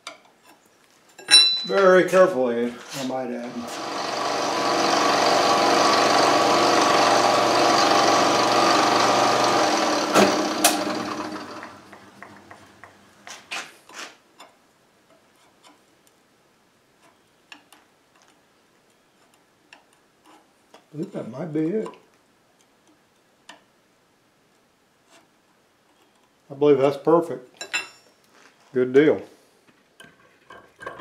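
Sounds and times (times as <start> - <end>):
end mill cutting aluminium: 3.0 - 12.0.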